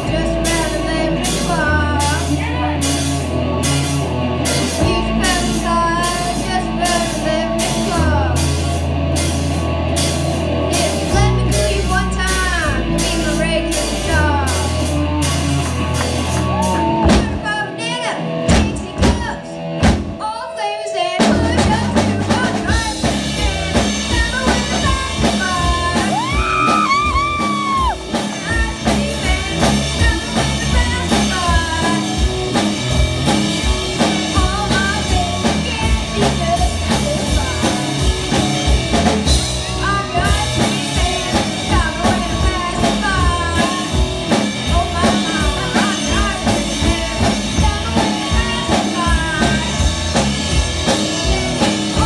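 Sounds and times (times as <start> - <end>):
boy singing: 0.0 - 3.0, 4.5 - 8.5, 20.2 - 32.3, 34.1 - 50.1
rock band playing: 0.0 - 52.0.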